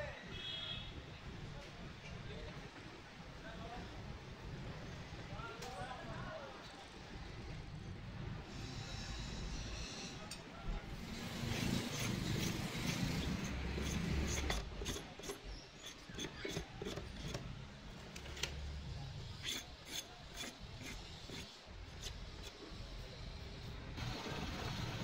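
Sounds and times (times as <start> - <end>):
blade sawing plastic: 11.0 - 17.5, 19.3 - 22.8.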